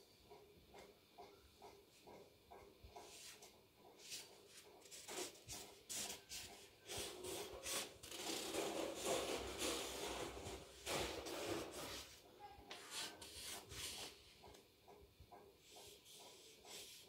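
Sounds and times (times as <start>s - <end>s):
marker scribbling on paper: 11.4s - 14.6s, 15.6s - 17.0s.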